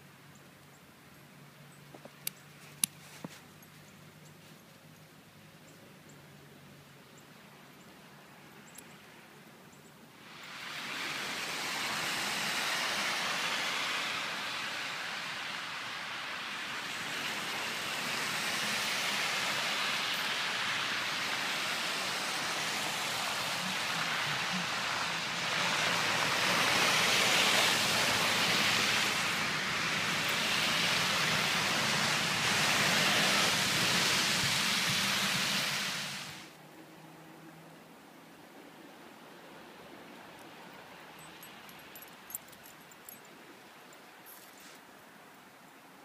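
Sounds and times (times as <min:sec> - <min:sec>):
tyres hissing through wet snow: 0:10.2 - 0:36.6.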